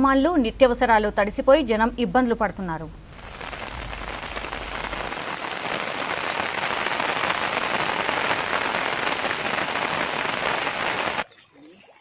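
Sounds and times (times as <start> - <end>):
heavy rain on floodwater: 3.1 - 11.3.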